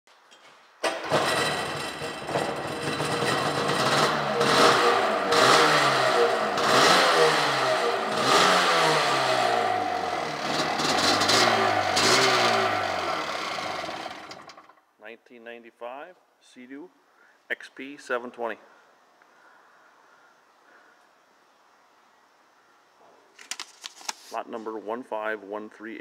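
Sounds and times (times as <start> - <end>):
jet ski engine revving: 1.0 - 14.7.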